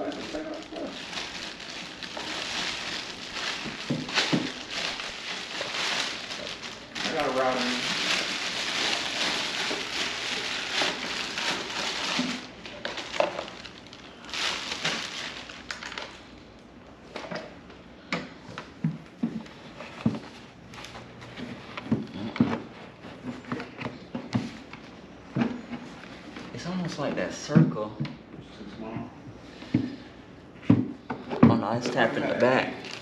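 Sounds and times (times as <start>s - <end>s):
plastic bag crinkling: 0.0s - 16.4s, 32.2s - 33.0s.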